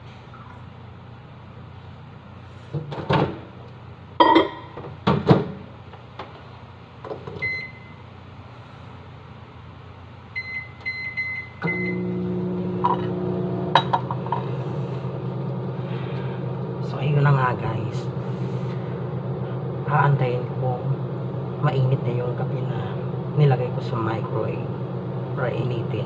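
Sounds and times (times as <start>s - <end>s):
microwave oven humming: 0.0s - 26.0s
microwave keypad beeps: 7.4s - 8.0s, 10.4s - 12.1s.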